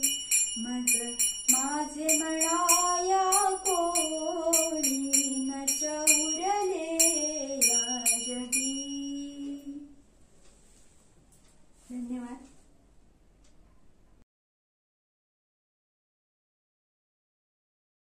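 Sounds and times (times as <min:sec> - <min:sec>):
small hand cymbals ringing: 0:00.0 - 0:09.8
woman singing: 0:00.0 - 0:10.0.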